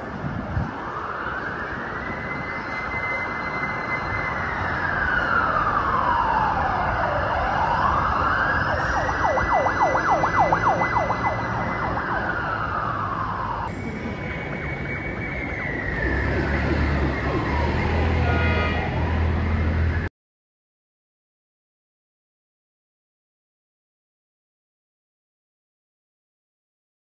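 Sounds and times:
fire engine siren wailing: 0:00.0 - 0:20.1
traffic noise: 0:00.0 - 0:20.1.

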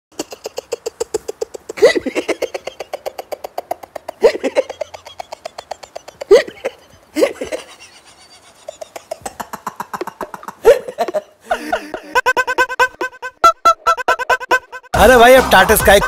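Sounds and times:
man laughing uncontrollably: 0:00.1 - 0:16.0.

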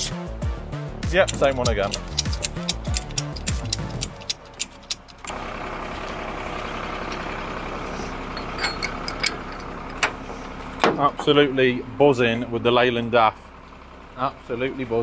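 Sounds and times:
background music with sweeps: 0:00.0 - 0:05.3
diesel truck engine idling: 0:01.4 - 0:15.0.

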